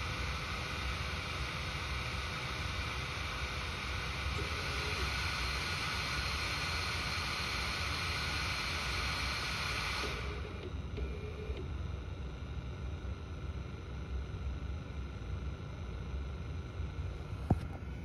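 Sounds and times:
blower fan rushing hiss: 0:00.0 - 0:18.0.

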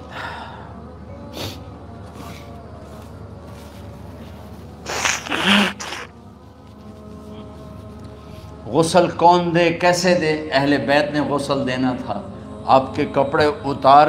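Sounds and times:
man breathing heavily: 0:04.9 - 0:06.1.

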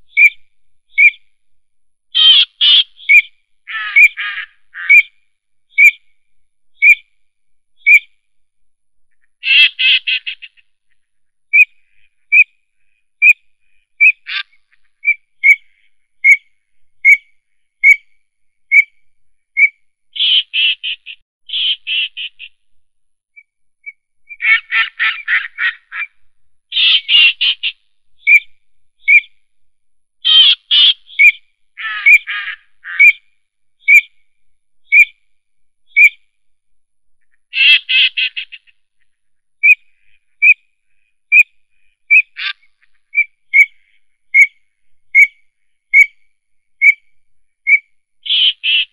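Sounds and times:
high animal call notes: 0:02.2 - 0:05.1, 0:09.4 - 0:10.6, 0:24.3 - 0:27.7, 0:30.2 - 0:33.2.

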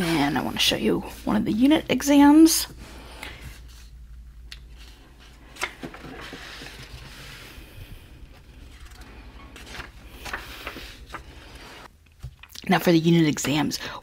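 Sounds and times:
paper pages rustling: 0:04.6 - 0:07.7, 0:08.3 - 0:11.9.

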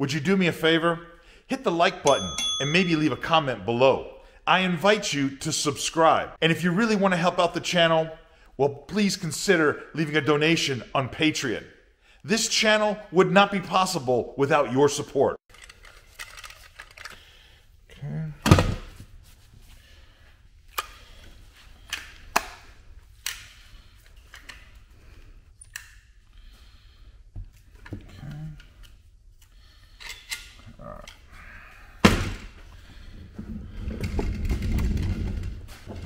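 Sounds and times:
rustling and shuffling: 0:18.7 - 0:25.6, 0:32.4 - 0:36.0.

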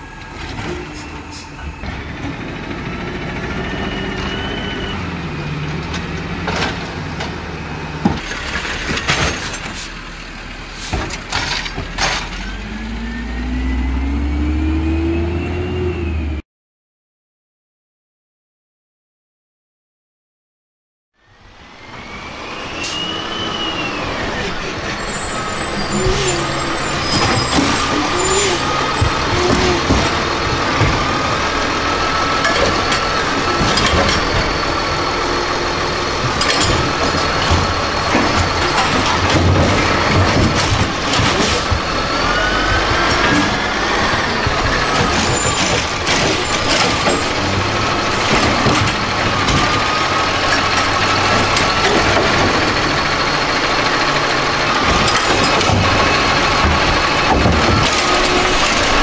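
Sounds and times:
garbage truck engine: 0:00.0 - 0:16.4, 0:21.2 - 0:59.0
hydraulic whine: 0:21.2 - 0:59.0
metal clanks against hopper: 0:32.4 - 0:34.7, 0:36.1 - 0:41.8, 0:43.0 - 0:53.1, 0:54.8 - 0:59.0.

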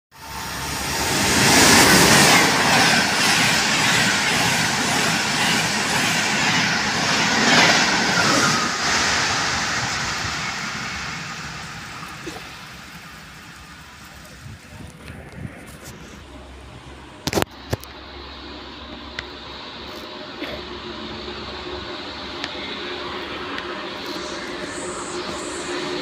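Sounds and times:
high-speed train rushing past: 0:00.1 - 0:26.0.

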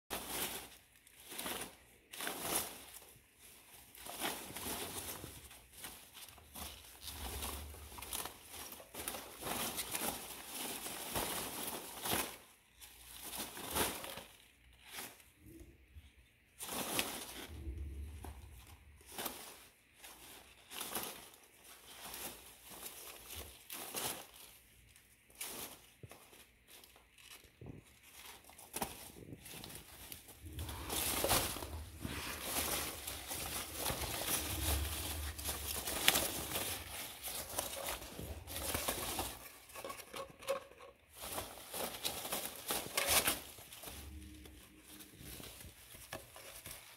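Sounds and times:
packing peanuts and balls rustling: 0:00.1 - 0:46.9.

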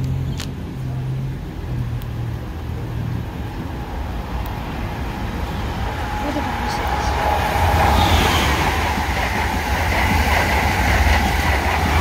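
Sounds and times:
train wheels rumbling on rail: 0:00.0 - 0:12.0
rush of air: 0:03.4 - 0:12.0.

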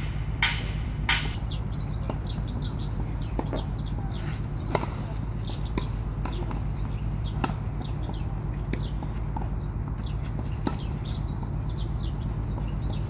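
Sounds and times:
tennis ball struck by racket: 0:00.0 - 0:01.5, 0:04.6 - 0:08.1, 0:08.7 - 0:11.2
birds chirping: 0:00.0 - 0:13.0
low outdoor hum: 0:00.0 - 0:13.0.

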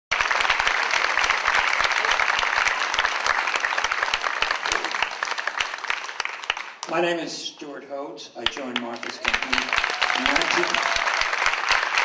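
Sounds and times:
audience applauding: 0:00.1 - 0:07.2, 0:08.4 - 0:12.0.

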